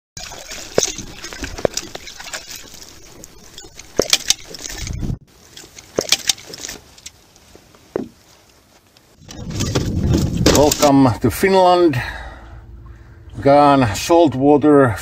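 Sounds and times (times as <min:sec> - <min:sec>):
water splashing: 0:00.2 - 0:07.2.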